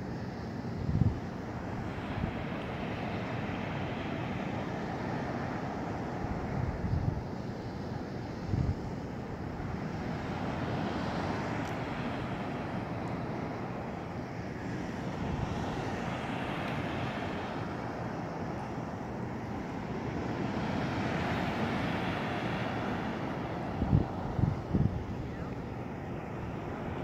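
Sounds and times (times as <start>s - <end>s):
waves: 0.0s - 27.0s
wind on microphone: 0.7s - 7.4s, 8.4s - 12.9s, 20.2s - 27.0s.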